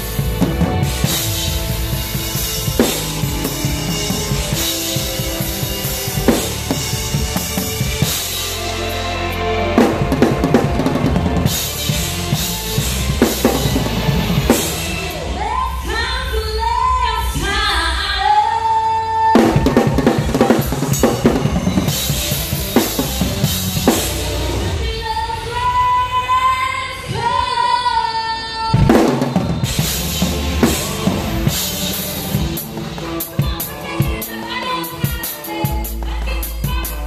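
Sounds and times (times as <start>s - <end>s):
cymbal crashes: 0.0s - 18.3s
live band playing: 0.0s - 37.0s
person singing: 32.6s - 37.0s.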